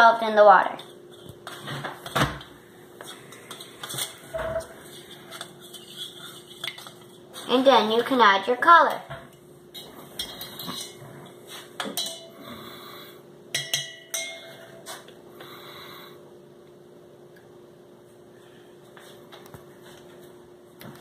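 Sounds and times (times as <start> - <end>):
faint room hum: 0.0 - 21.0
utensil clinking against metal bowl: 3.3 - 7.2, 9.7 - 11.0, 11.8 - 12.4, 13.5 - 14.7.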